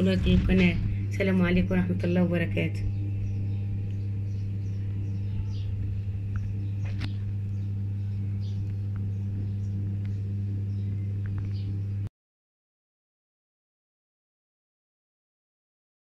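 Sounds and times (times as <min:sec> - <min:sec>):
low electrical hum: 0:00.0 - 0:12.1.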